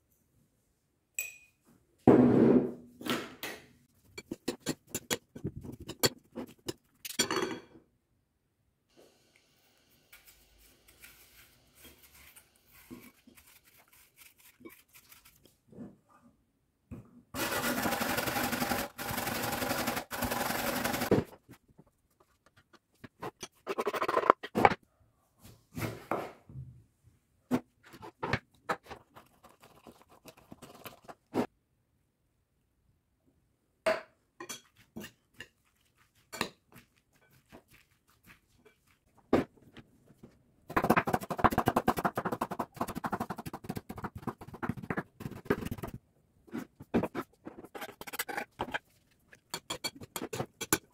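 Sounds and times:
spoon scraping wooden board: 4.0s - 7.0s, 40.9s - 50.9s
knife scraping apple peel: 10.2s - 15.4s.

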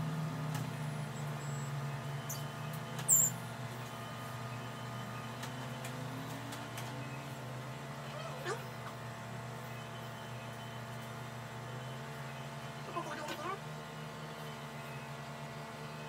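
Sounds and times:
sharp high squeak: 3.1s - 3.4s.

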